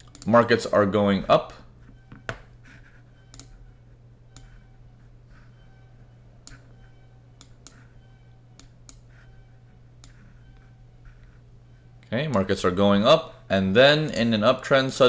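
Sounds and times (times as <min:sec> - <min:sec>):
computer mouse clicks: 0:00.0 - 0:00.3, 0:03.3 - 0:03.5, 0:04.3 - 0:04.5, 0:06.4 - 0:06.7, 0:07.4 - 0:07.8, 0:08.6 - 0:09.1, 0:10.0 - 0:10.2
low electrical hum: 0:00.0 - 0:15.0.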